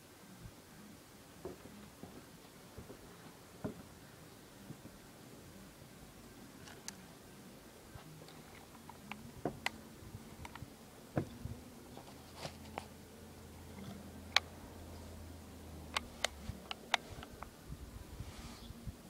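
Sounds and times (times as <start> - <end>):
faint low hum: 0.0 - 19.0
air pistol clicks: 15.9 - 17.5.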